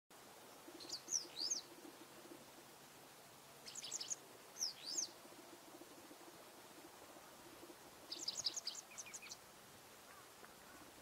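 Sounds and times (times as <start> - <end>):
bird singing: 0.5 - 2.6, 3.6 - 9.4.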